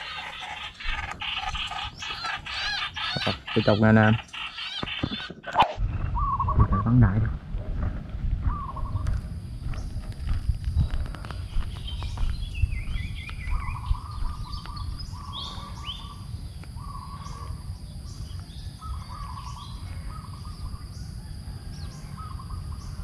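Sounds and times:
high bird notes: 0.0 - 7.1
birds chattering: 0.0 - 7.6, 8.2 - 23.0
steady low rumble: 5.8 - 21.2.

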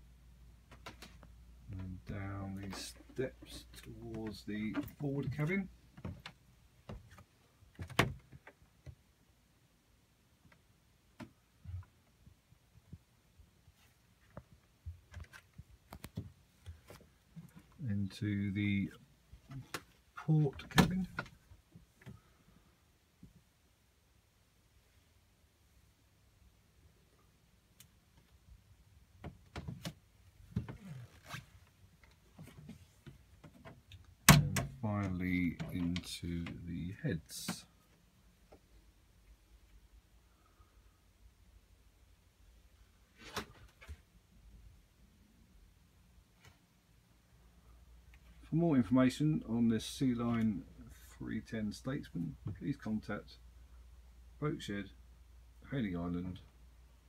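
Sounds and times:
door creaking: 34.3 - 34.9.

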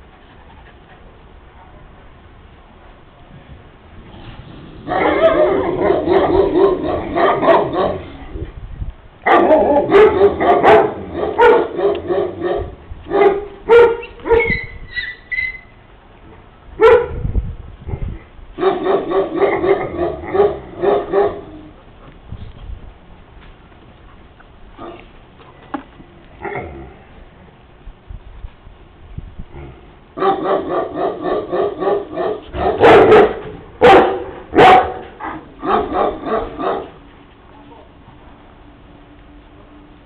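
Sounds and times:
dog barking rapidly: 4.9 - 8.0, 9.3 - 14.6, 18.6 - 21.5, 30.2 - 36.9.

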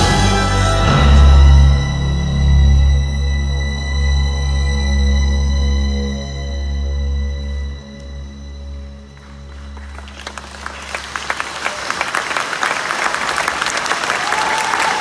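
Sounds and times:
audience applause: 9.1 - 15.0.

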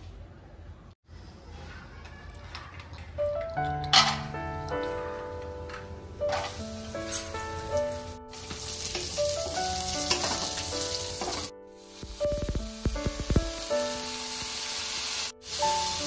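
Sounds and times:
simple melody: 3.2 - 16.0
nuts sizzling in a wok: 8.3 - 16.0.

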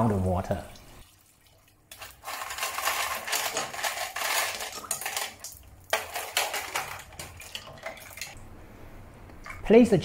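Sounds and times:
ice cubes clattering into tub: 1.9 - 8.4.

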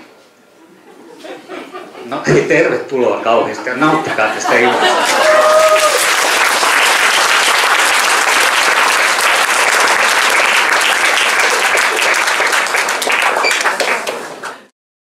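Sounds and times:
audience applauding: 4.8 - 14.7.

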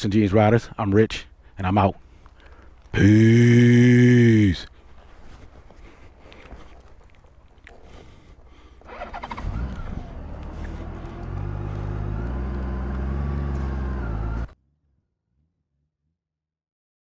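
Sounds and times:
motorcycle engine accelerating: 8.9 - 14.6.

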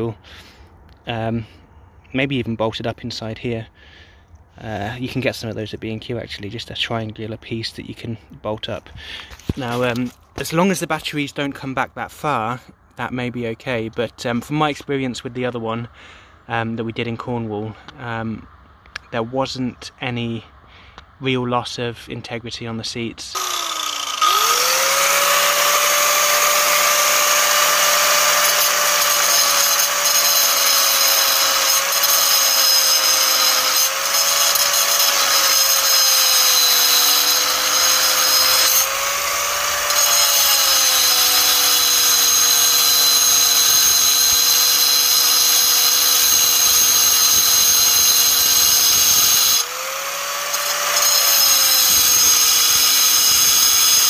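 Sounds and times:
angle grinder cutting steel: 23.4 - 54.0.

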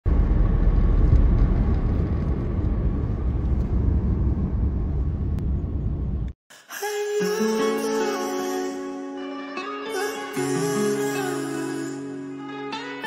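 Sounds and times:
car cabin road noise: 0.1 - 6.3
music with plucked strings: 7.1 - 13.0.

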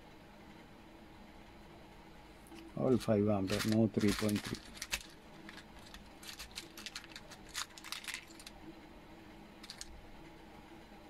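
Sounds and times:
glass fuses clicking and clinking: 3.0 - 8.5, 9.6 - 9.9.

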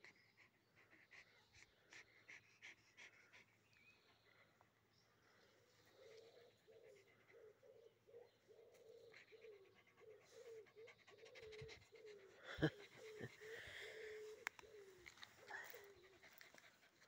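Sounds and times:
dog panting: 0.0 - 4.9, 8.8 - 17.0.

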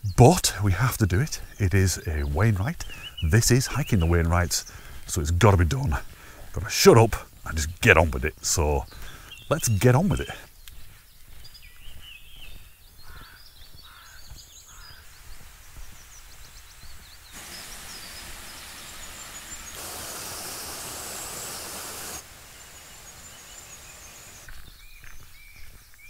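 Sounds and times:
songbirds chirping: 0.0 - 26.0
water running down waterfall: 17.4 - 24.5.

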